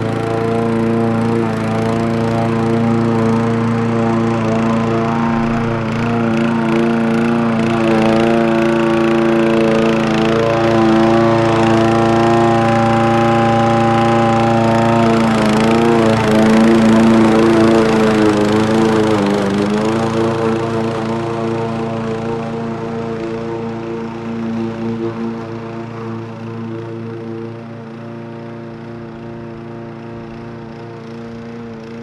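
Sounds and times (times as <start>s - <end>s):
lawnmower running: 0.0s - 32.0s.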